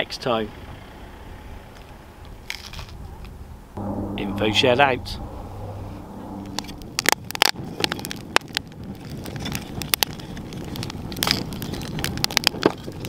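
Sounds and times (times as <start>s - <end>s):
steady low noise: 3.8s - 7.9s.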